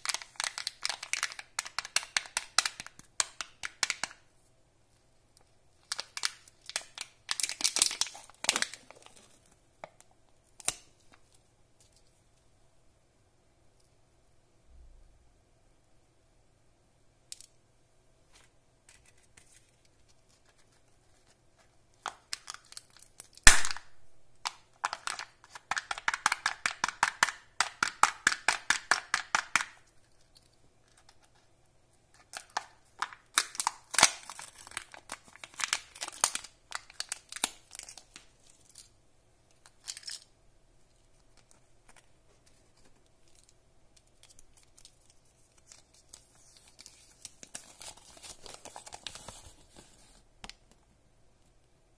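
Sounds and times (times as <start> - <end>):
plastic wrapper crinkling and tearing: 0.0 - 4.2, 5.8 - 12.1, 18.9 - 23.8, 24.4 - 31.5, 32.1 - 40.3, 40.9 - 50.7.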